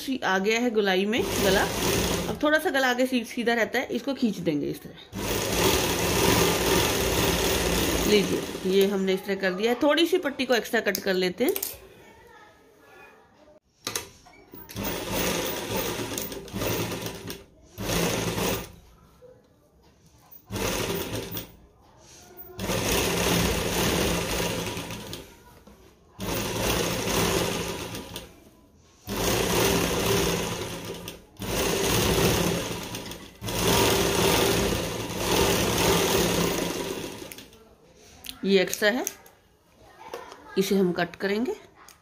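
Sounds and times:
sewing machine stitching: 1.1s - 2.7s, 5.1s - 9.1s, 13.8s - 18.9s, 20.2s - 25.5s, 26.2s - 37.6s.

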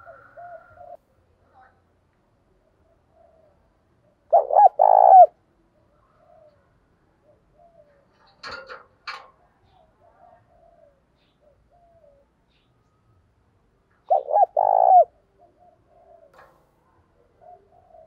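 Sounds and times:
dove cooing: 0.0s - 1.0s, 4.3s - 5.4s, 6.0s - 8.2s, 9.7s - 12.3s, 14.1s - 16.6s, 17.2s - 18.0s.

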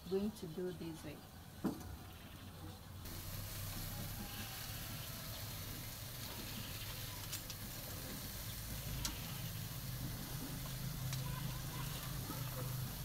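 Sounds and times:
meat sizzling on a grill: 3.0s - 13.0s.

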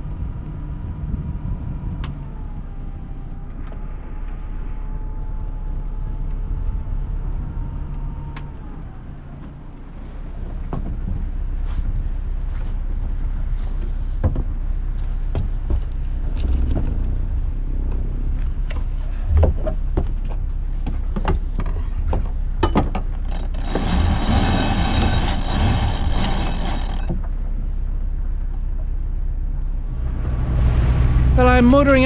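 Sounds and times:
boat engine idling: 0.0s - 32.0s
knocks and clicks of deck fittings: 19.4s - 27.3s.

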